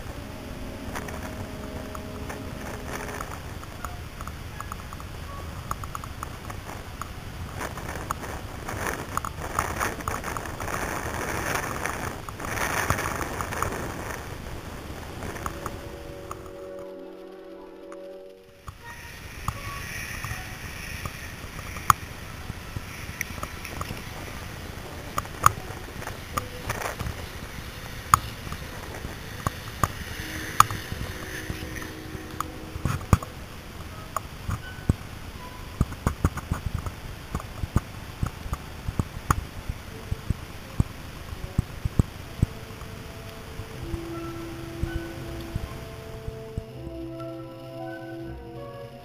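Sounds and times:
steady rushing noise: 0.0 - 49.0
sharp clicks and knocks: 0.9 - 14.2, 35.7 - 40.9.

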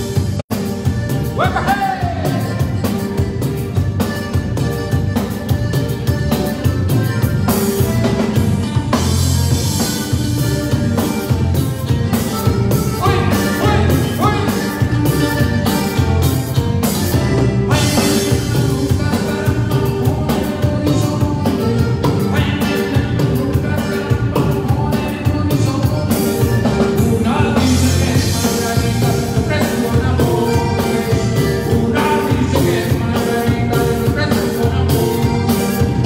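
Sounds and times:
drum kit beat: 0.0 - 36.0
live band playing: 0.0 - 36.0
person singing: 1.2 - 3.5, 12.9 - 16.0, 17.3 - 36.0.

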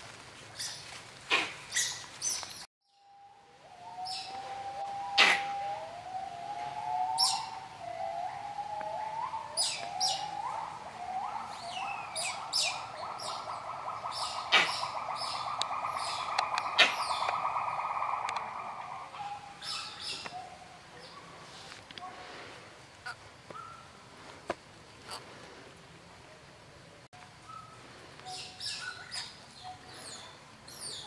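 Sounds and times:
birds chirping: 1.7 - 21.4
sharp clicks: 18.2 - 18.5.

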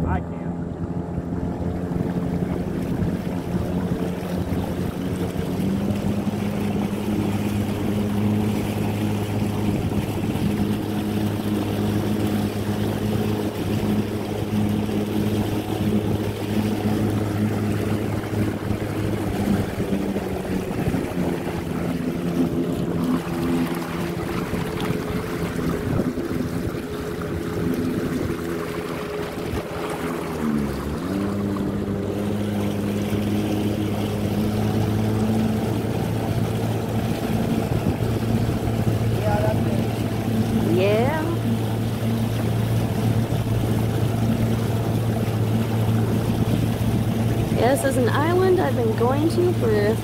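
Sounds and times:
motorboat engine humming: 0.0 - 50.0.

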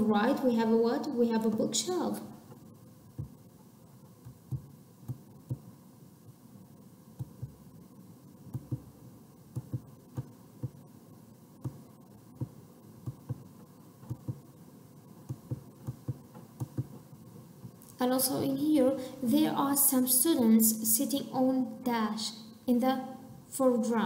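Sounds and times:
faint steady hum: 0.0 - 24.0
stylus tapping on touchscreen: 2.5 - 3.4, 4.2 - 5.7, 7.2 - 7.6, 8.5 - 10.8, 11.6 - 14.5, 15.2 - 17.0.

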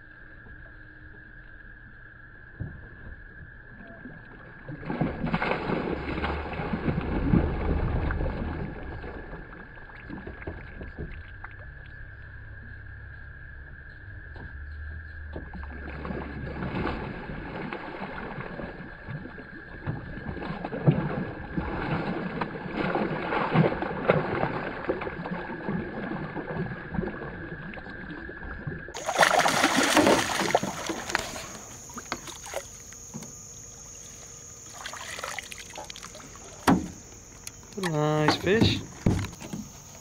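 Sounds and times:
fish splashing in water: 4.5 - 11.5, 15.4 - 33.1, 33.8 - 39.9.

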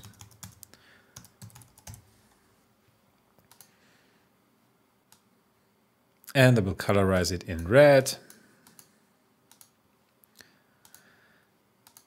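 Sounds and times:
typing on computer keyboard: 0.0 - 2.0, 3.5 - 3.7, 8.3 - 8.9, 9.5 - 9.7.

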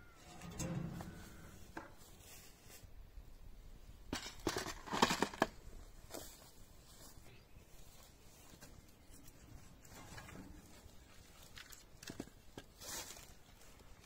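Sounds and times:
log scraping from stack: 0.2 - 2.0.

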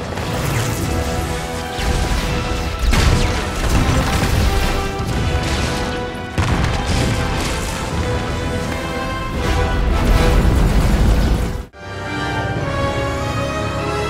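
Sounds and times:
orchestral score: 0.0 - 14.0
explosion booms and crashes: 1.8 - 8.7, 9.3 - 11.7.

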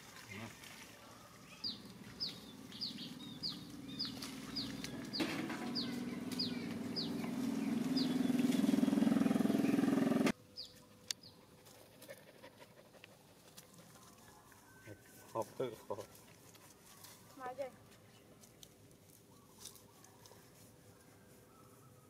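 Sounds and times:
bird chirping: 1.4 - 11.5
engine humming: 1.7 - 10.3.

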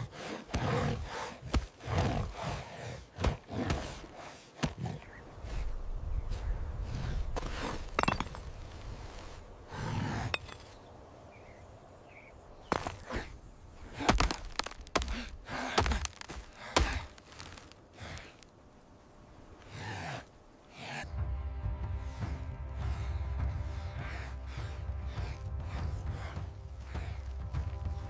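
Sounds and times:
dry branch cracking: 14.0 - 18.5.

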